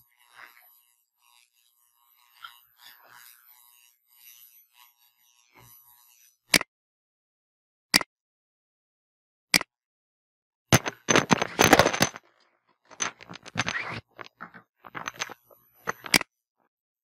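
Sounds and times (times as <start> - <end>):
clatter of clicks and knocks: 10.8 - 12.2, 12.9 - 16.2.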